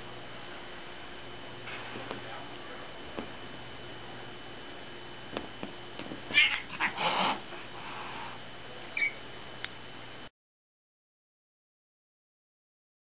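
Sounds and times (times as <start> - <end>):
cat yowling angrily: 6.3 - 7.4.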